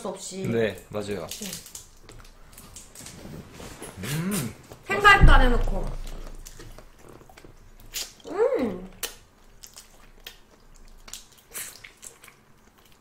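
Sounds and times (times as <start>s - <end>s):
shrimp shells cracking: 1.0s - 3.1s
chewing: 1.2s - 4.8s, 5.8s - 13.0s.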